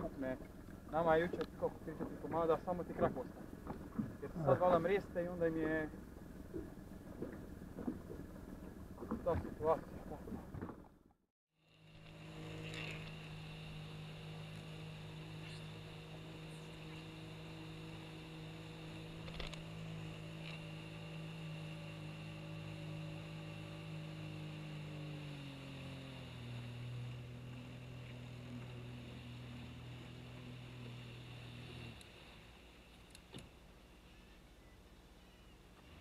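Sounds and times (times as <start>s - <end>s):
motor hum: 0.0s - 36.0s
faint small clicks: 19.2s - 19.7s, 32.9s - 33.5s.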